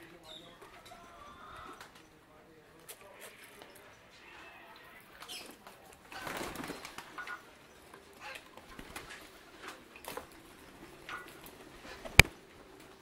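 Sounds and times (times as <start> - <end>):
pigeons fluttering: 5.2 - 13.0.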